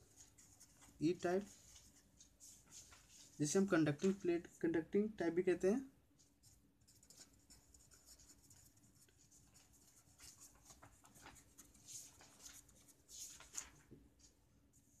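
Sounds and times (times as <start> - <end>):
marker pen scratching on paper: 6.2 - 13.3.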